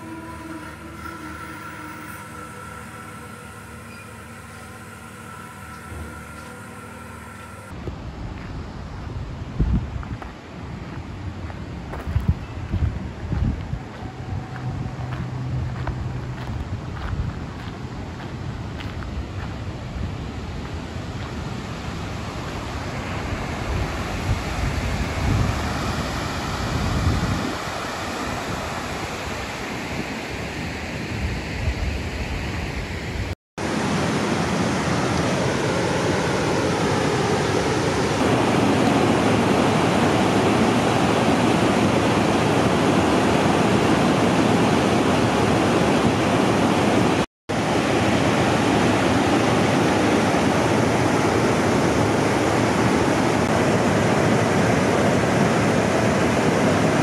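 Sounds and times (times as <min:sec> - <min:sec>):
steady rushing outdoor noise: 0:00.0 - 0:57.0
wind buffeting microphone: 0:07.7 - 0:33.4.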